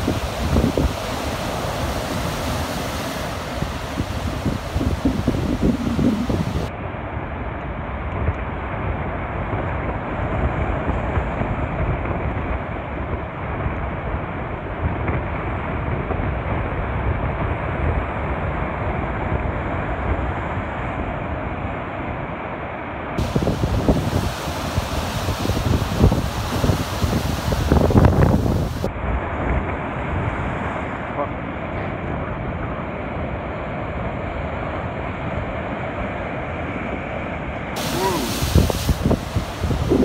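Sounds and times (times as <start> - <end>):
sea surf breaking on sea wall: 0.0 - 6.7, 23.2 - 37.0, 37.7 - 40.0
wind buffeting microphone: 0.0 - 21.4, 23.2 - 31.0, 36.7 - 40.0.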